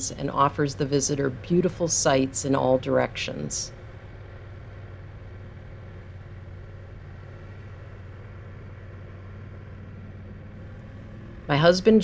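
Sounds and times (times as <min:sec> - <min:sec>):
motorcycle engine running: 0:03.7 - 0:12.0.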